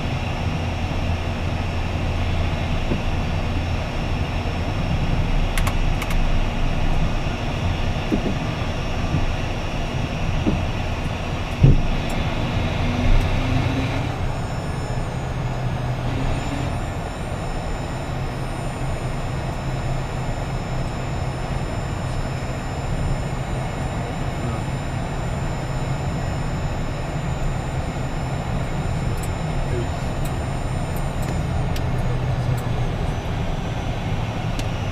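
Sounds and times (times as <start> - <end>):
jet engines humming with whine: 0.0 - 34.9
sharp thump: 11.6 - 11.9.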